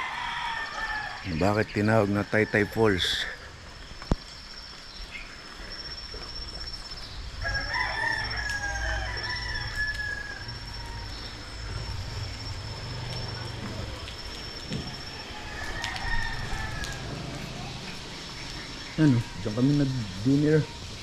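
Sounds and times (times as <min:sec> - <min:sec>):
rooster crowing: 0:00.0 - 0:01.4, 0:07.4 - 0:12.4, 0:14.7 - 0:17.9.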